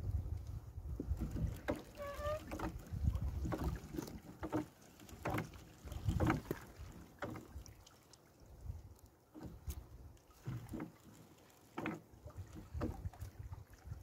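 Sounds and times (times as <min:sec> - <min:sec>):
wet fishing net rustling and knocking: 0:00.9 - 0:07.6, 0:09.3 - 0:13.8.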